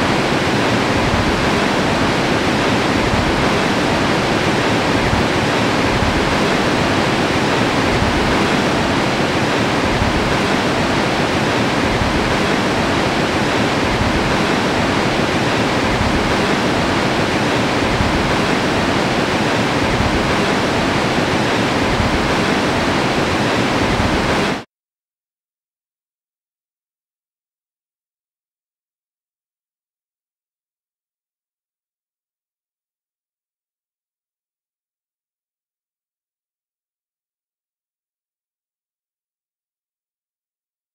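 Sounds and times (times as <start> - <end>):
water rushing: 0.0 - 24.6.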